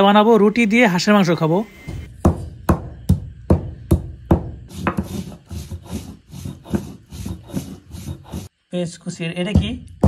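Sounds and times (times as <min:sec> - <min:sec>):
knocks crushing spices on stone: 0:02.1 - 0:05.2
rasping rubbing on grinding stone: 0:04.7 - 0:08.5.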